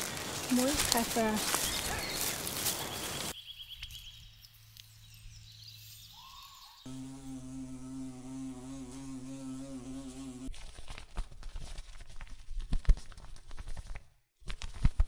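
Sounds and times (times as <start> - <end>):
bumblebee buzzing: 6.9 - 10.5.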